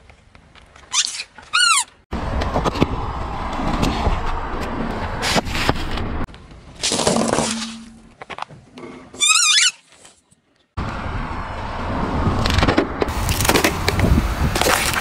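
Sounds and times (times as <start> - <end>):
tyre crushing small objects: 6.8 - 8.5.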